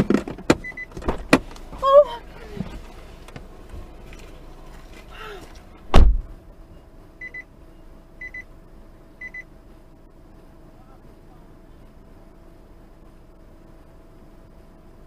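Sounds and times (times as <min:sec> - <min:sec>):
car door shutting: 0:00.0 - 0:06.4.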